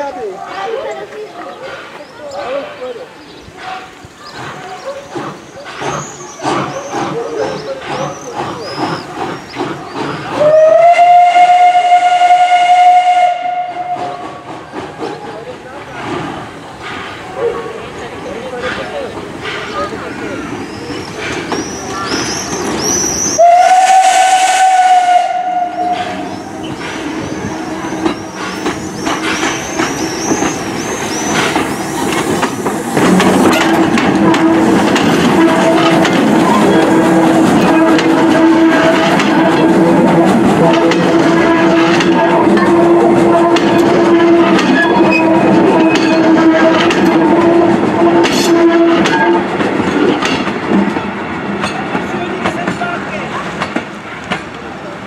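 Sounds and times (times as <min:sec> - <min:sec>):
train wheels clicking over rail joints: 0:00.0 - 0:55.0
steam locomotive exhaust chuffing: 0:01.5 - 0:52.6.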